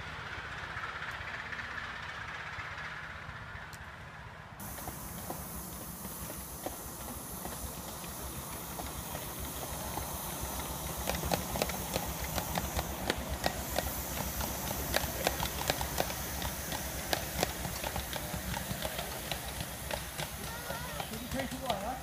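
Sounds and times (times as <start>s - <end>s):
miniature steam locomotive passing: 0.0s - 22.0s
wheels clicking over rail joints: 0.0s - 22.0s
steam hissing: 4.6s - 22.0s.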